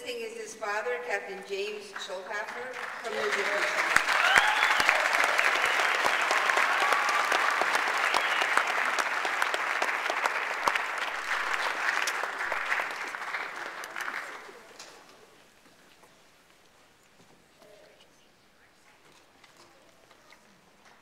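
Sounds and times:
audience applauding: 0:02.6 - 0:15.1.

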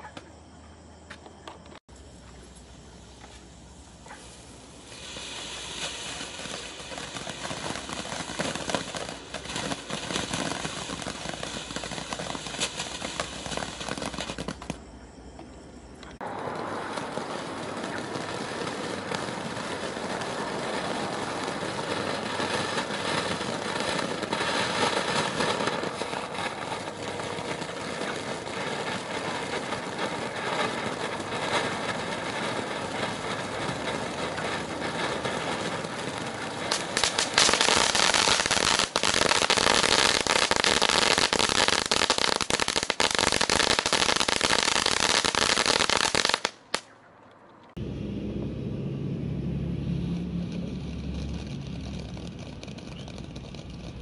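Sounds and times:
firework fountains hissing and crackling: 0:01.8 - 0:46.9, 0:50.0 - 0:54.0.

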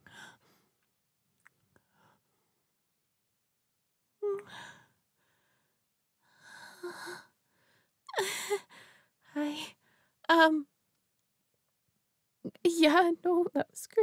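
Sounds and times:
woman humming: 0:04.2 - 0:04.6.

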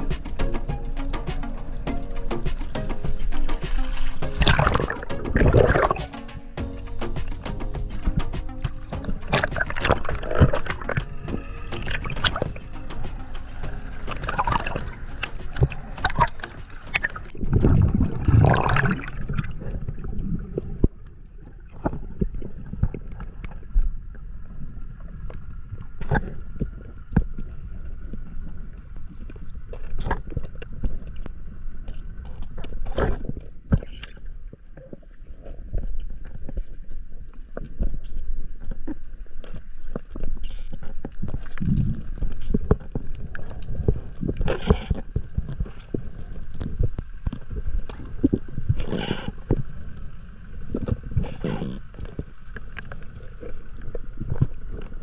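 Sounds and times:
sharp underwater clicks: 0:00.0 - 0:21.0
seawater splashing: 0:00.0 - 0:24.2.

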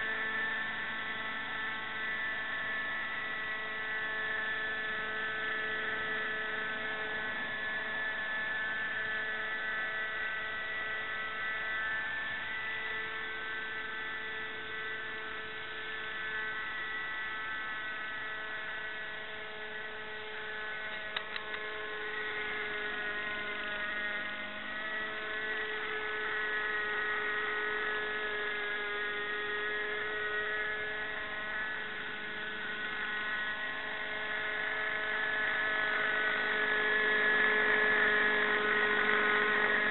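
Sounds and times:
model helicopter engine whining: 0:00.0 - 0:39.9
sharp clicks: 0:20.9 - 0:21.6.

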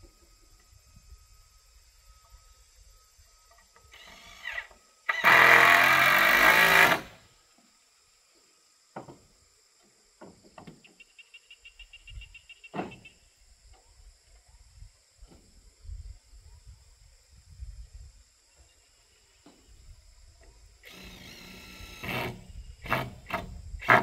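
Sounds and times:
handheld power tool running: 0:04.0 - 0:07.2, 0:20.8 - 0:24.0.

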